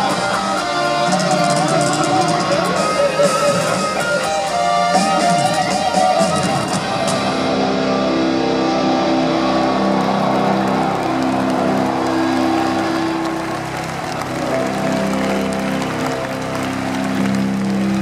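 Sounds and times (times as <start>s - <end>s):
crowd noise: 0.0s - 18.0s
distorted electric guitars: 0.0s - 18.0s.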